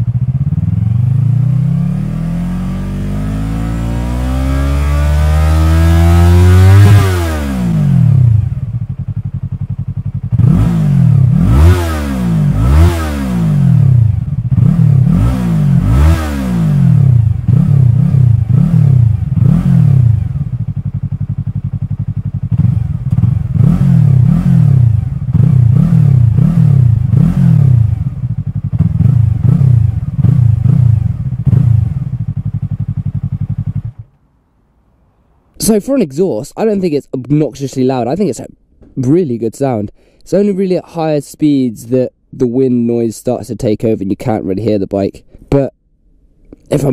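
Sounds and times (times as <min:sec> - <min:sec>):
motorcycle engine revving: 0:00.0 - 0:34.2.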